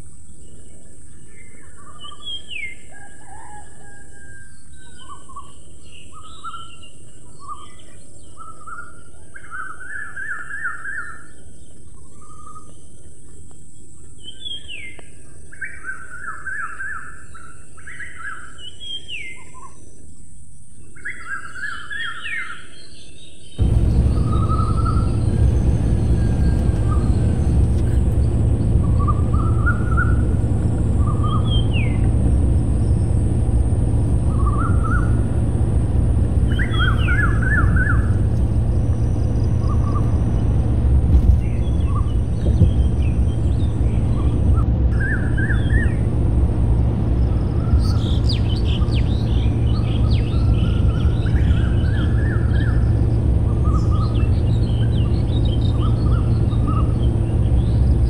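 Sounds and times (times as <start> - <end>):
birds chirping: 23.6 - 58.0
steady low rumble: 23.6 - 58.0.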